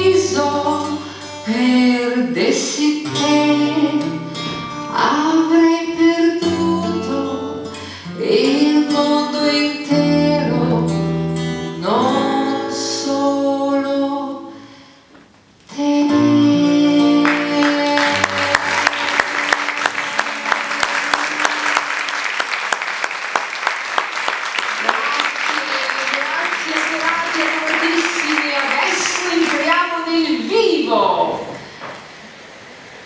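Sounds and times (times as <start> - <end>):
woman singing: 0.0 - 14.6, 15.7 - 19.3
instrumental accompaniment: 16.1 - 22.8
audience applause: 17.2 - 29.8.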